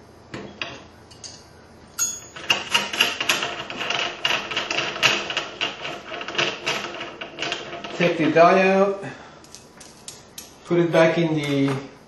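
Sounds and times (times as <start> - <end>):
metal clicking and rattling: 2.0 - 8.5.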